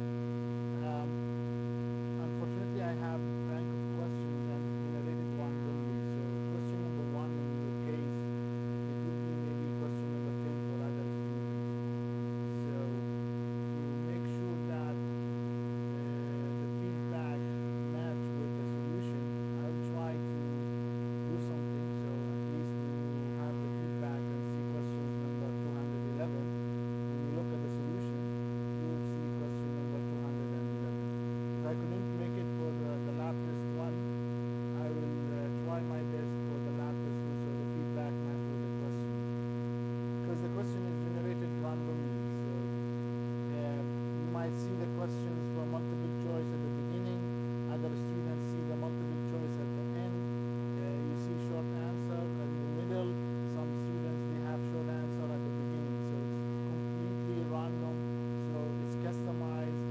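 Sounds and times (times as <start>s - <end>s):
electrical mains hum: 0.0s - 59.9s
faint voice: 0.8s - 1.1s, 43.5s - 50.2s.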